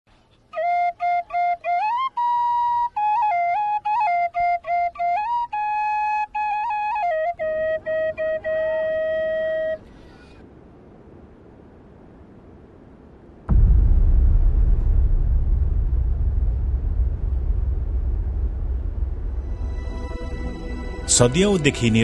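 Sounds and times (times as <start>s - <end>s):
solo flute melody: 0.5s - 9.8s
low steady rushing noise: 4.4s - 22.0s.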